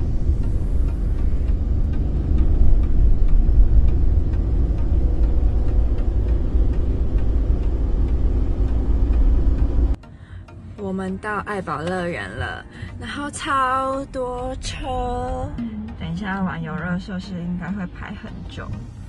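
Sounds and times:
car cabin road rumble: 0.0 - 10.0.

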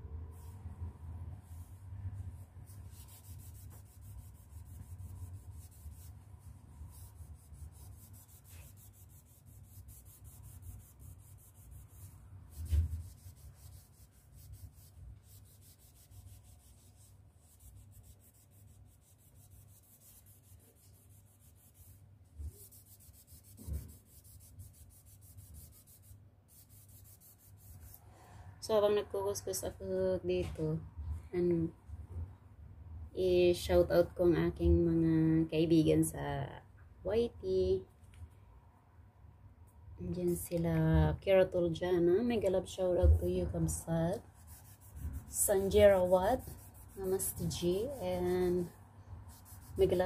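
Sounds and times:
cloth scrubbing a wall: 1.4 - 28.0, 44.1 - 50.0.

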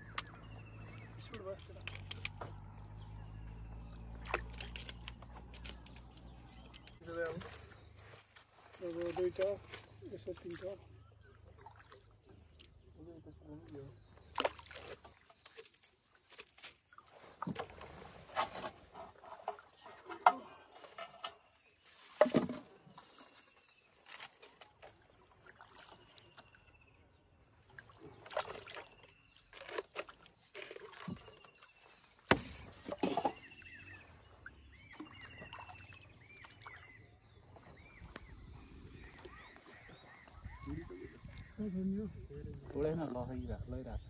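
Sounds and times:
water sloshing at hull: 0.0 - 41.6
traps splashing into water: 8.9 - 12.8, 14.2 - 15.8, 27.6 - 36.8.

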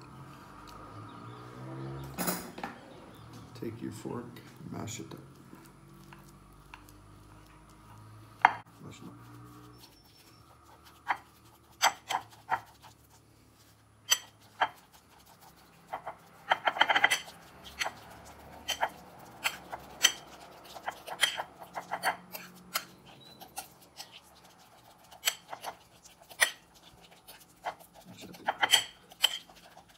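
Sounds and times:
fork scraping plate: 8.4 - 13.2, 14.0 - 29.9
fork clicking against plate: 18.6 - 24.1, 28.5 - 29.6.

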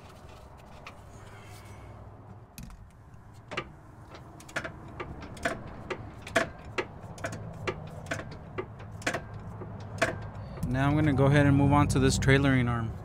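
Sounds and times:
hand ratchet clicking: 4.0 - 10.6.

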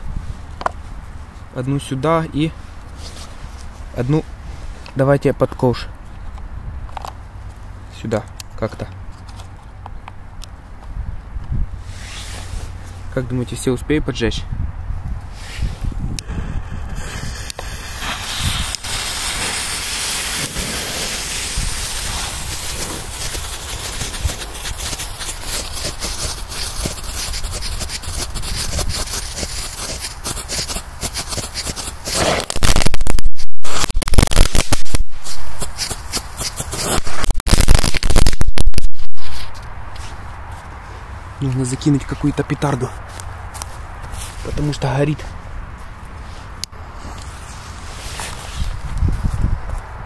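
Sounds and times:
pyrotechnics hissing and crackling: 15.4 - 39.6.

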